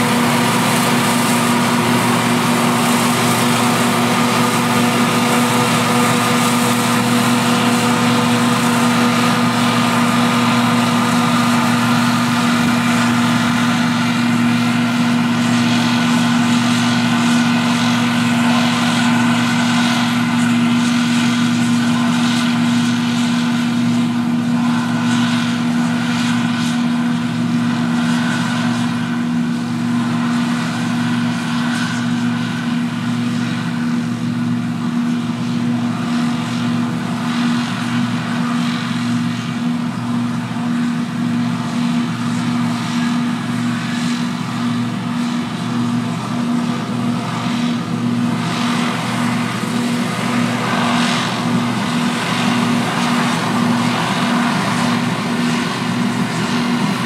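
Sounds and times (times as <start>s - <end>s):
combine harvester drone: 0.0s - 57.0s.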